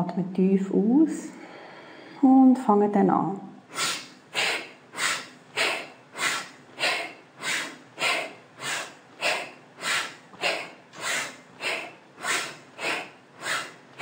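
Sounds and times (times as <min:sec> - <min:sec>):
woman breathing forcefully through nose: 0:01.4 - 0:02.2, 0:03.7 - 0:14.0.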